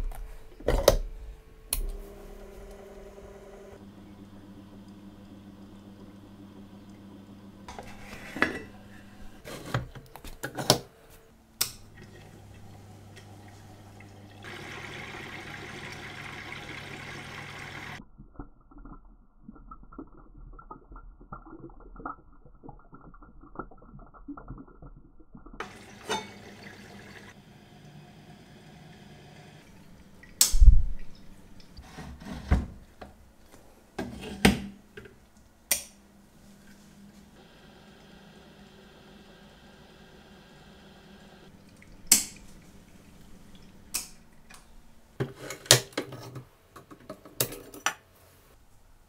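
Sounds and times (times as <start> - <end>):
motor hum: 0.0 - 10.4, 11.6 - 18.0, 25.6 - 32.8, 36.6 - 45.2.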